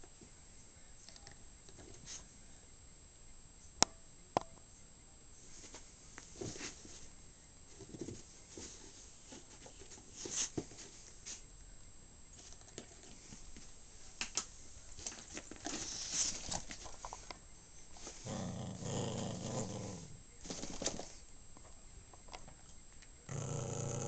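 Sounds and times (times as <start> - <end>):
dog growling: 18.2 - 20.2, 23.2 - 24.0.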